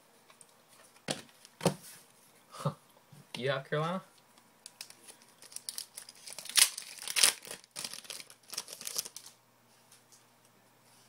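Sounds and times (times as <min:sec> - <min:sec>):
plastic wrapper tearing and crinkling: 0:04.8 - 0:09.4.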